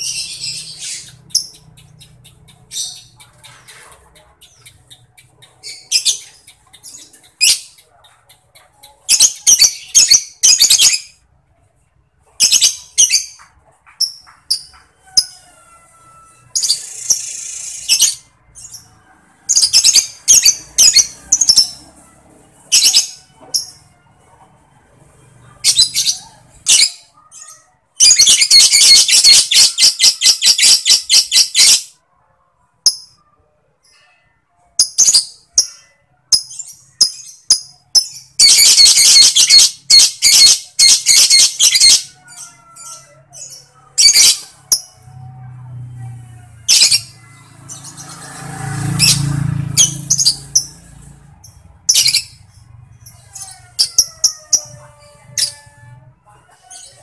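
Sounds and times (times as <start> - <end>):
lovebird chatter: 0.0 - 11.1, 46.7 - 50.8
lovebird chirping: 0.0 - 11.2, 48.8 - 50.8.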